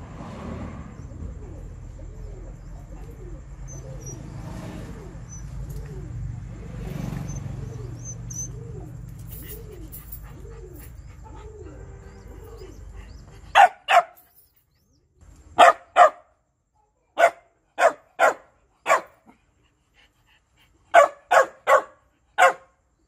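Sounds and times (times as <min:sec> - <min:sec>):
dog barking: 0:13.5 - 0:14.2, 0:15.6 - 0:16.3, 0:17.1 - 0:19.3, 0:20.9 - 0:22.8.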